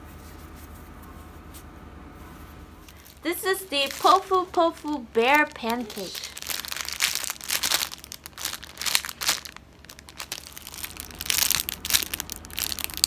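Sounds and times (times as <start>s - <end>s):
plastic packaging crinkling: 2.8s - 13.0s.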